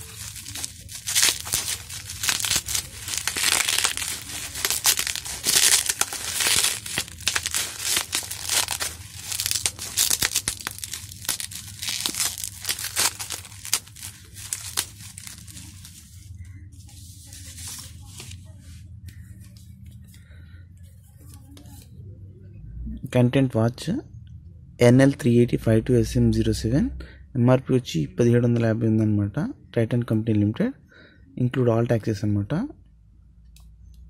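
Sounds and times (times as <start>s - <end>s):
bubble wrap crinkling and tearing: 0.0s - 18.5s.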